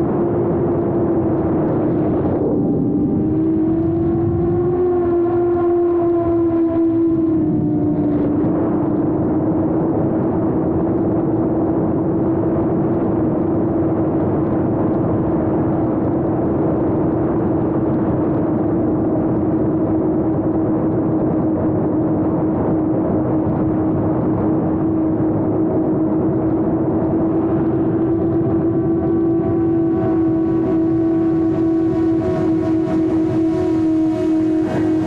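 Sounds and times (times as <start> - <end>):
drone propellers whirring: 0.0 - 13.3, 17.4 - 35.0.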